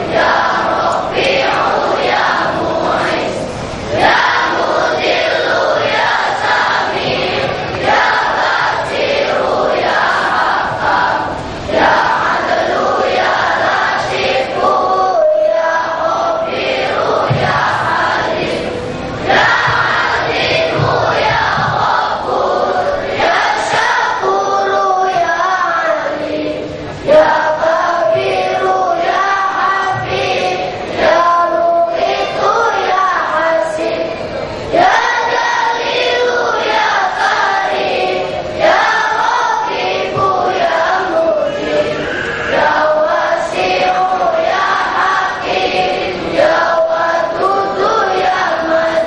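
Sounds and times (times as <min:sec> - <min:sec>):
boys choir singing: 0:00.0 - 0:49.0.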